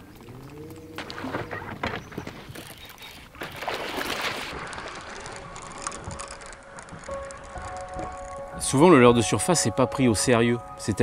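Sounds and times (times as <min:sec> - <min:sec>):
small splashes on water: 0:02.2 - 0:05.5.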